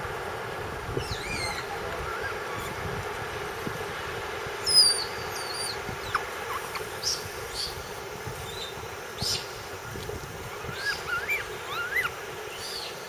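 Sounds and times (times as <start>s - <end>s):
background hiss: 0.0s - 13.0s
high-pitched chirping calls: 1.0s - 2.8s, 4.6s - 7.8s, 10.5s - 13.0s.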